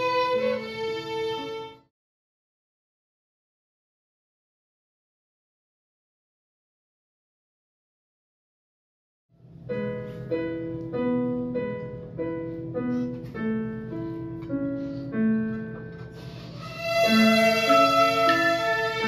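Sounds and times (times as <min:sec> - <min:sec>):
children playing violins: 0:00.0 - 0:01.9, 0:16.5 - 0:19.0
piano accompaniment: 0:00.0 - 0:01.9, 0:09.4 - 0:19.0.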